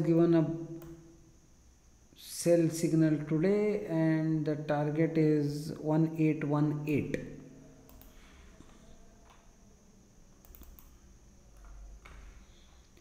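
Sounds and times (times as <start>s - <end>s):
computer keyboard clicks: 7.9s - 8.2s, 10.4s - 11.0s.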